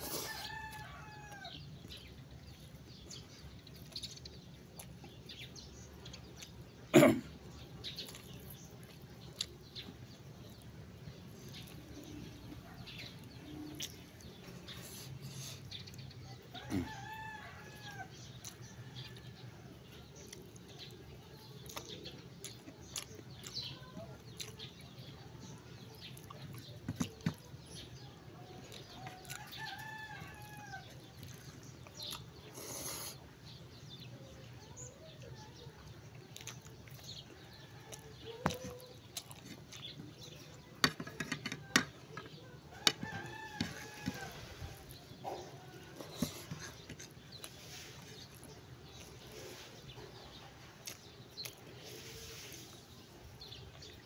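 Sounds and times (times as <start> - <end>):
rooster crowing: 0.1 - 1.6, 16.5 - 18.1, 42.8 - 44.5.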